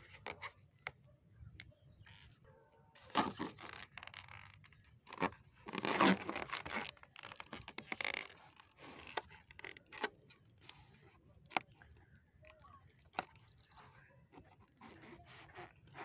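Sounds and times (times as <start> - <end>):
balloons rubbing and crackling: 2.9 - 16.0.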